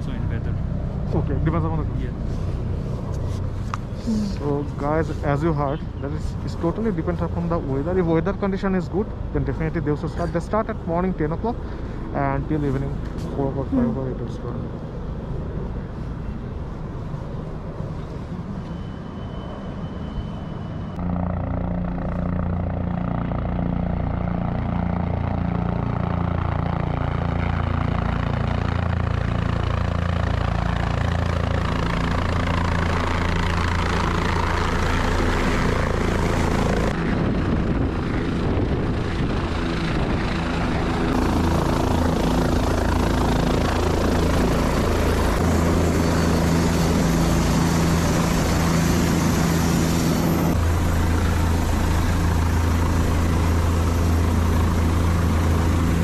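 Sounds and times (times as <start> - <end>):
helicopter rotor and engine: 0.0 - 56.0.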